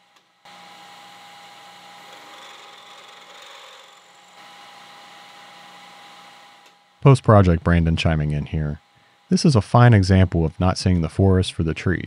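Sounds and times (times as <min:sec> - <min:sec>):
metal lathe cutting: 0:00.5 - 0:07.0.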